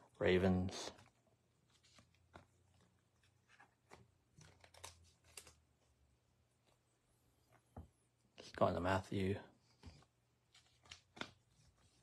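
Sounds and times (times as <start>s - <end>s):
trading cards and wrappers rustling: 0.7s - 5.7s, 8.3s - 12.0s.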